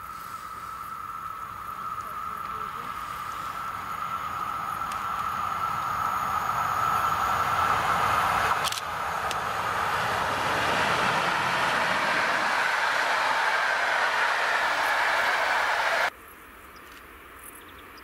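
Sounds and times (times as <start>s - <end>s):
train wheel and rail noise: 0.0s - 16.1s
high-pitched hum: 1.3s - 16.1s.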